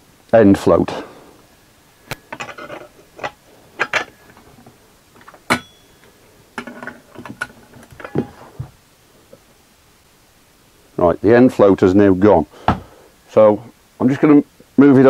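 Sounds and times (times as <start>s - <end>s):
sharp metal knock: 5.5s - 5.8s.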